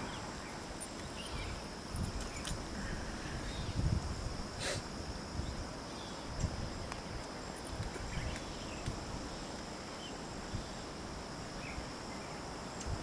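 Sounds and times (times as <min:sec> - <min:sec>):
insects droning: 0:00.0 - 0:13.0
wind on microphone: 0:01.2 - 0:09.4, 0:12.8 - 0:13.0.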